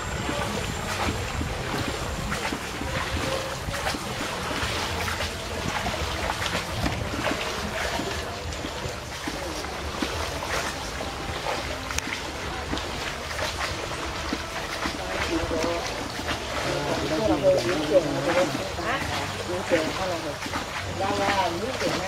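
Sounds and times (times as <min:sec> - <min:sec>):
paddles splashing in water: 0:00.0 - 0:22.0
water trickling off paddles: 0:00.0 - 0:22.0.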